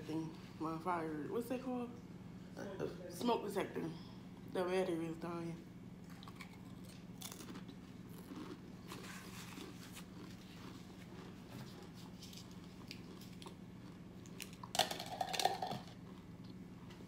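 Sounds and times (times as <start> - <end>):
steady low hum: 0.0 - 17.0
chewing potato chips: 6.0 - 16.6.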